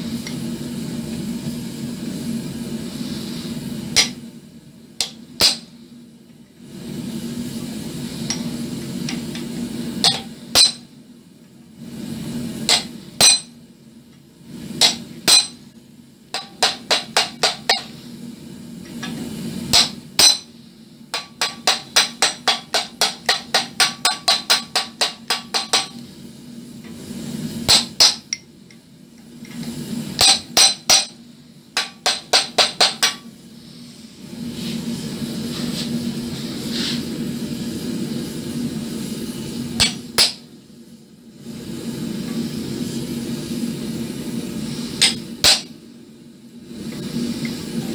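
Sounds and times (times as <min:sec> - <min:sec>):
hammer striking steel tool: 0:04.0 - 0:04.2, 0:05.0 - 0:05.7, 0:10.0 - 0:10.9, 0:12.7 - 0:13.5, 0:14.8 - 0:15.6, 0:16.4 - 0:17.9, 0:19.7 - 0:20.5, 0:21.1 - 0:26.0, 0:27.7 - 0:28.5, 0:30.2 - 0:31.2, 0:31.8 - 0:33.3, 0:39.8 - 0:40.4, 0:45.0 - 0:45.7.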